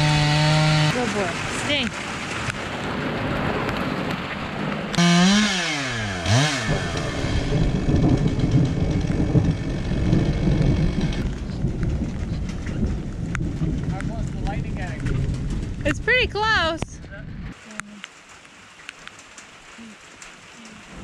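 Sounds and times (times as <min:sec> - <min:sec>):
chainsaw cutting log: 0:00.0 - 0:01.1, 0:05.0 - 0:11.3.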